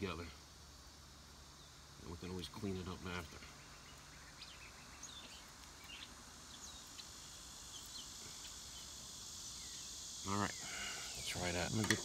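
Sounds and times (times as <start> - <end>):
insect chorus: 0.0 - 12.0
bird chirps: 3.3 - 11.8.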